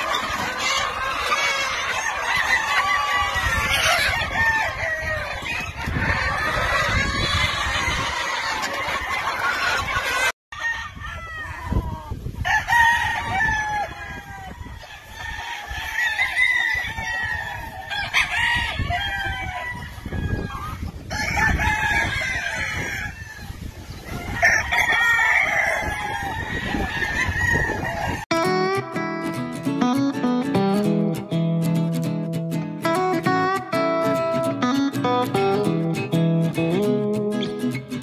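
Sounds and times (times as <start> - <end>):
chickens clucking: 0.0 - 12.4, 13.2 - 31.2
roosters crowing: 0.0 - 28.3
guitar music: 28.3 - 38.0.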